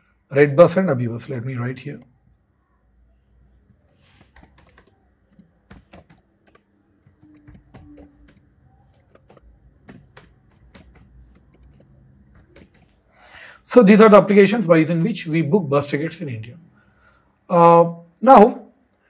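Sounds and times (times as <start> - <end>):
laptop keyboard typing: 3.6 - 13.2.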